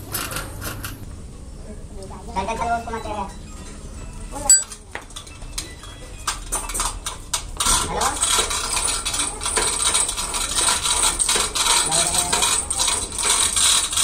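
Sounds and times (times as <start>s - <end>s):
metal clinking and scraping: 4.4s - 14.0s.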